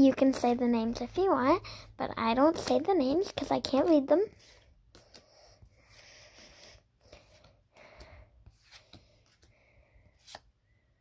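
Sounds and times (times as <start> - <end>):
cards rustling: 4.3 - 6.1, 7.0 - 10.5.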